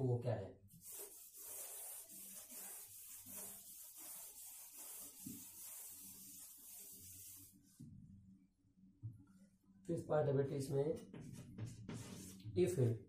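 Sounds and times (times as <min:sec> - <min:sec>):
eraser scrubbing a chalkboard: 0:00.8 - 0:07.7, 0:11.1 - 0:12.4.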